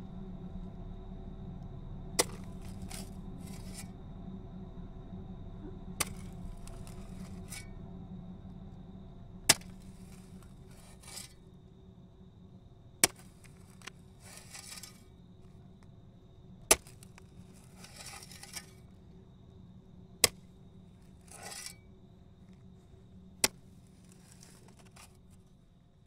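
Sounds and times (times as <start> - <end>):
steady low hum: 0.0 - 26.0
shovel striking ground: 2.2 - 3.9, 6.0 - 7.7, 9.5 - 11.4, 13.0 - 15.0, 16.7 - 18.8, 20.2 - 20.4, 21.2 - 21.8, 23.4 - 25.2
dirt scraping rustle: 2.2 - 4.0, 6.0 - 7.7, 9.5 - 11.4, 13.0 - 15.1, 16.7 - 18.9, 21.0 - 21.8, 23.4 - 25.5.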